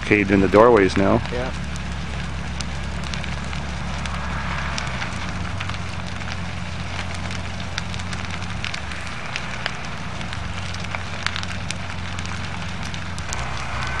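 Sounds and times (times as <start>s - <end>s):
burning wood popping: 0.0s - 14.0s
house fire crackling: 0.0s - 14.0s
low fire rumble: 0.0s - 14.0s.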